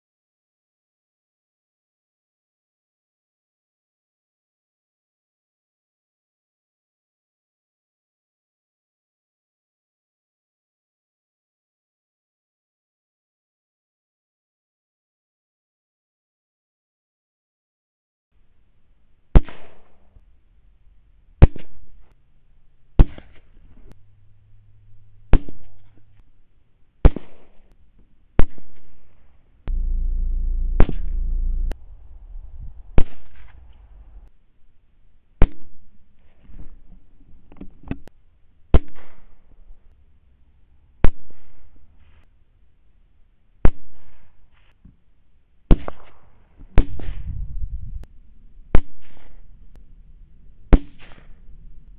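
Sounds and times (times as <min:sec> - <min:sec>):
loud low hum: 0:29.7 - 0:33.0.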